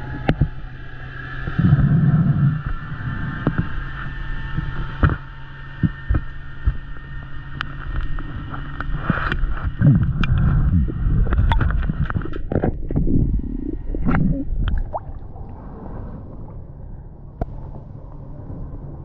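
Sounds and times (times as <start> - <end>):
underwater water rush: 0.0 - 19.0
underwater clicks and knocks: 0.1 - 0.6, 2.6 - 3.8, 4.5 - 15.2.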